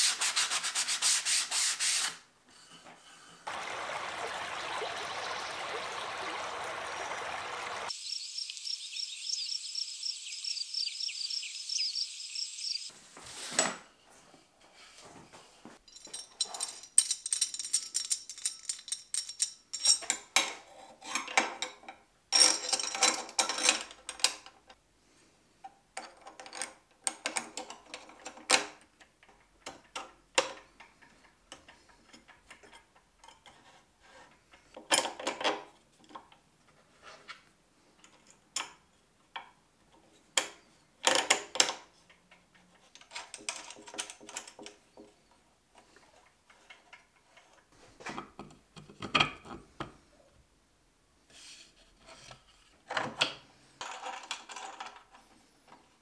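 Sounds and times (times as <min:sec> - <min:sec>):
metal hardware clinking and rattling: 0:15.8 - 0:20.2.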